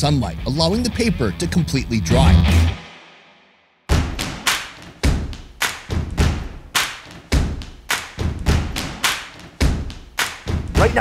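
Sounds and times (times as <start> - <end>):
heavy rhythmic thuds with crack: 3.9 - 11.0.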